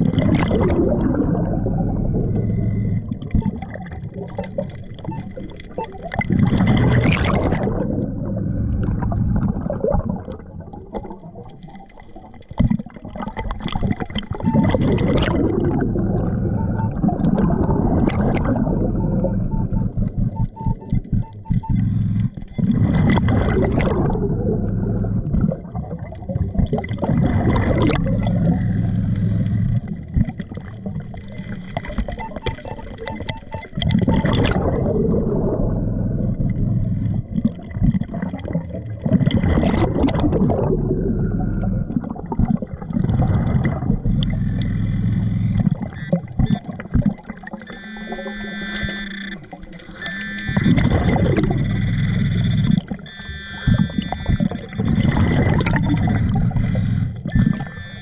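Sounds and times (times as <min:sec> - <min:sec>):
steady low hum: 0:00.0 - 0:03.7, 0:27.0 - 0:31.8, 0:34.8 - 0:38.1, 0:43.5 - 0:58.0
exhaled bubbles gurgling: 0:00.0 - 0:58.0.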